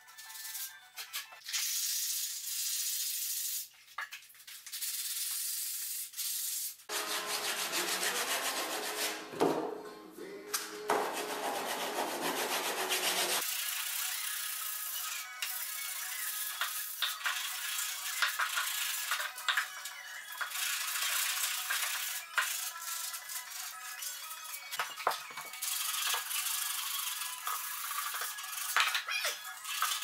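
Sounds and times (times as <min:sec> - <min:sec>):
sanding sponge rubbing: 0:06.2 - 0:09.3, 0:11.0 - 0:13.4.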